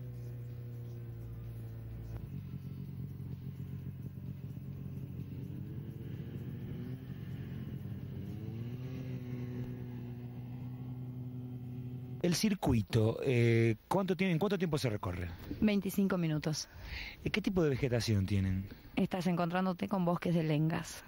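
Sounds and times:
snowmobile engine running: 0.0s - 12.2s.

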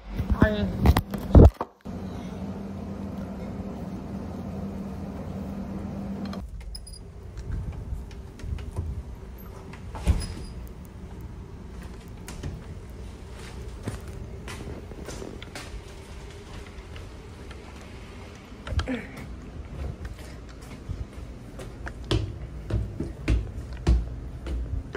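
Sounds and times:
ship machinery drone: 1.9s - 23.2s
footsteps in a corridor: 7.4s - 24.9s.

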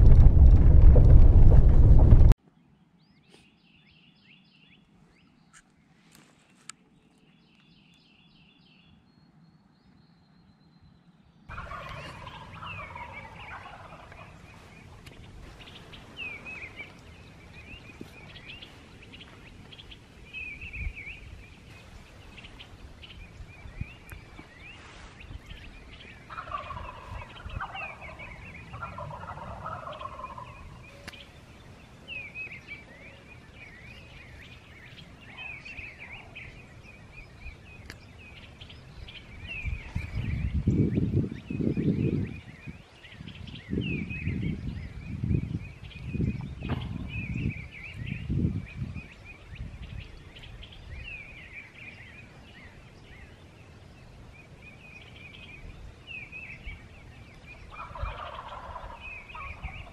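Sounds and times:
turkey gobbling: 11.5s - 14.5s, 26.0s - 31.2s, 57.7s - 59.9s.

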